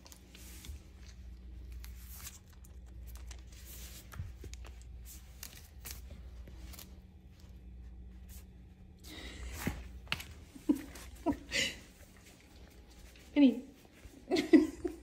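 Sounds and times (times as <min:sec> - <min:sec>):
low steady hum: 0:00.0 - 0:15.0
sticky tape crinkling and peeling: 0:01.0 - 0:07.3.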